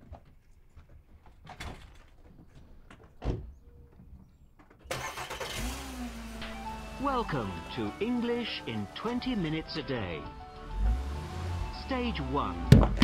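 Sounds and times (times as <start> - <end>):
car engine starting: 4.9 - 13.0
car door shutting with thump: 12.7 - 13.0.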